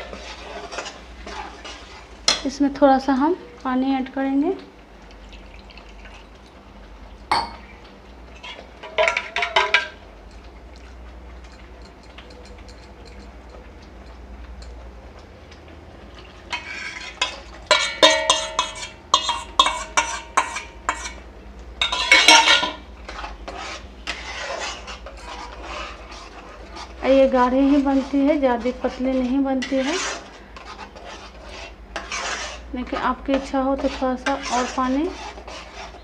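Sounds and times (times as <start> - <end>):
spoon clinking in metal pan: 16.6 - 21.2, 21.8 - 22.8.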